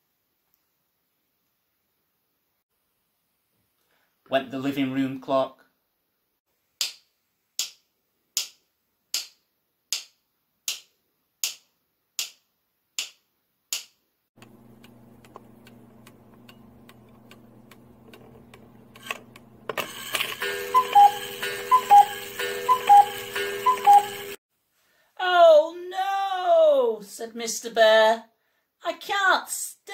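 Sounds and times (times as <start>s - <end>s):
cuckoo clock calling: 18.1s - 24.4s.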